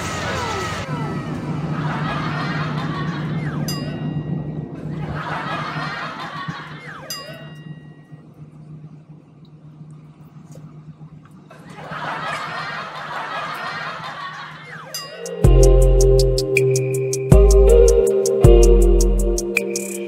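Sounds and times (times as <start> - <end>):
low cabin hum: 15.4 - 19.6.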